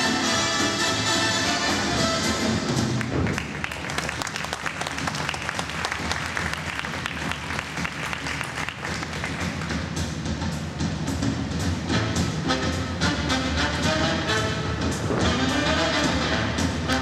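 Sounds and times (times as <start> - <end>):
music: 0.0 - 17.0
audience applauding: 3.0 - 9.8.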